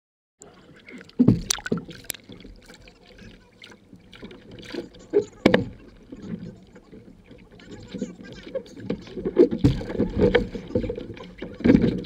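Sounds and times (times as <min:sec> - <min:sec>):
water splashing and sloshing: 0:00.4 - 0:12.0
loud splashes or knocks: 0:01.0 - 0:02.8, 0:09.2 - 0:12.0.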